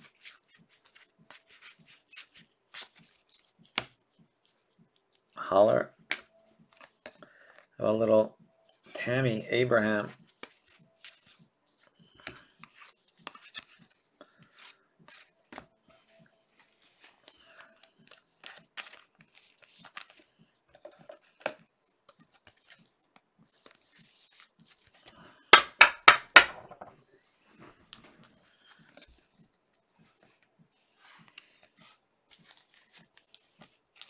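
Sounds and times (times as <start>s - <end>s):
cards being handled: 0.0s - 7.8s, 8.8s - 26.9s, 27.9s - 34.0s
card wrappers crinkling: 16.5s - 20.4s, 32.3s - 34.0s.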